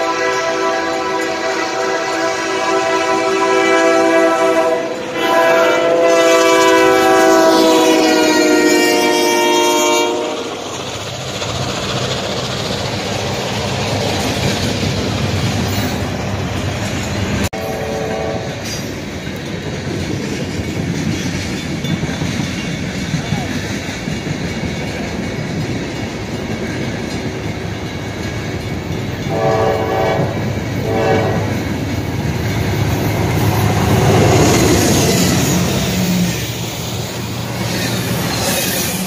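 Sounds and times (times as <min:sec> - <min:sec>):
locomotive horn blasts: 0:00.0 - 0:10.5, 0:17.6 - 0:18.6, 0:29.2 - 0:31.6
steady rail noise: 0:00.0 - 0:39.0
freight cars rumbling and clattering: 0:10.6 - 0:17.5.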